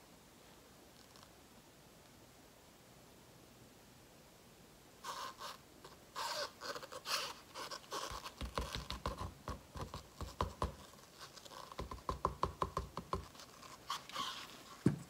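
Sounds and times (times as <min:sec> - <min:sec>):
light scratching and rustling: 0:05.0 - 0:12.4, 0:13.0 - 0:15.0
soft taps and dull knocks: 0:08.1 - 0:10.9, 0:11.7 - 0:13.4.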